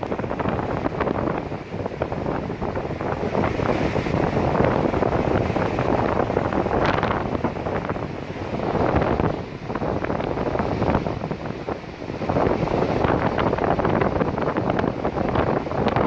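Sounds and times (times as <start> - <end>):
breaking surf: 0.0 - 16.0
wind buffeting microphone: 0.0 - 16.0.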